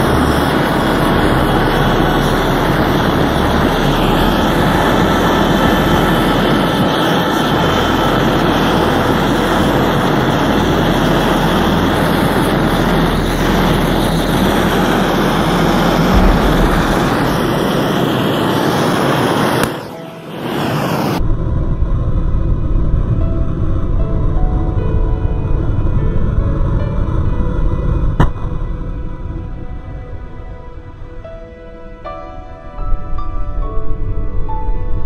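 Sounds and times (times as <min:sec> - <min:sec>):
gas torch flame hissing: 0:00.0 - 0:21.2.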